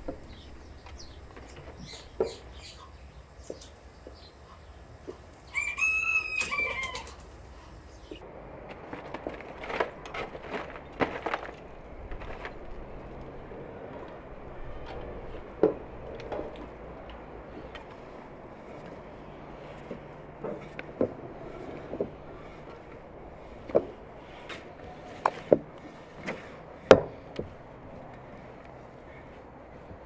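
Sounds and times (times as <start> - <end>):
rooster crowing: 5.5 - 7.2.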